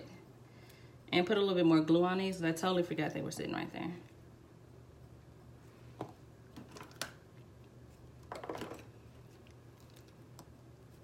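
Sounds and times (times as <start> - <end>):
crackly handling noise: 6.0 - 10.6.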